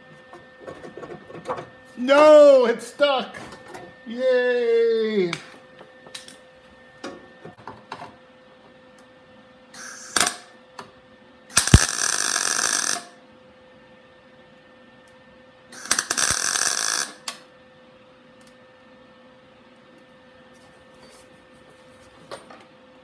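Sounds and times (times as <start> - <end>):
welder arc crackling: 11.6 - 13.1, 15.8 - 17.4.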